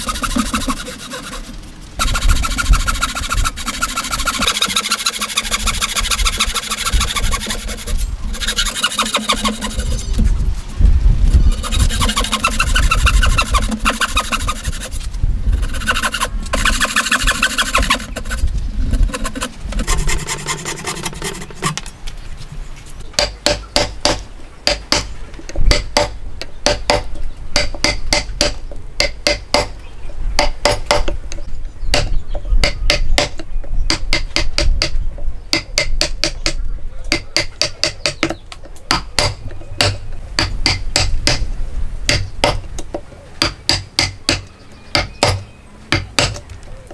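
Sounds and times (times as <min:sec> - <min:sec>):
hand saw cutting wood: 0:00.0 - 0:10.2, 0:11.5 - 0:15.0, 0:15.6 - 0:21.8.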